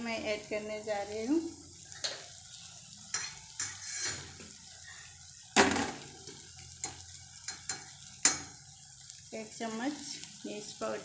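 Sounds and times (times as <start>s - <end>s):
vegetables sizzling in oil: 0.0s - 11.0s
metal spatula scraping a pan: 1.8s - 2.5s, 3.1s - 5.1s.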